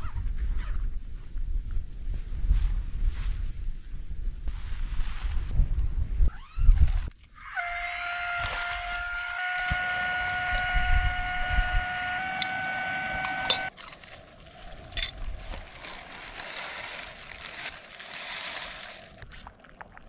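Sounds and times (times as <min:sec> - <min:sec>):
battery air pump whining: 0:07.4 - 0:13.7
plastic bag rustling: 0:13.8 - 0:19.6.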